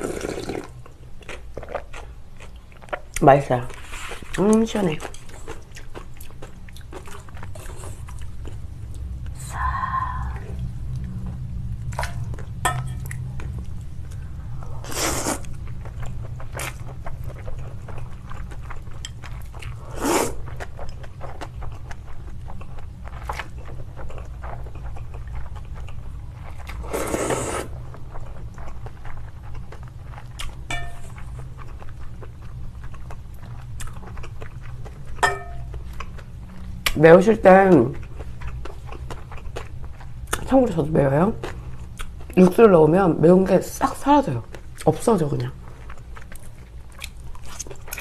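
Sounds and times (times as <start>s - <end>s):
slurping noodles: 0.0s - 0.8s, 26.8s - 27.7s
chewing: 0.0s - 9.4s, 10.6s - 37.0s, 37.9s - 40.5s, 44.4s - 48.0s
low hum: 7.1s - 20.0s, 27.7s - 41.9s.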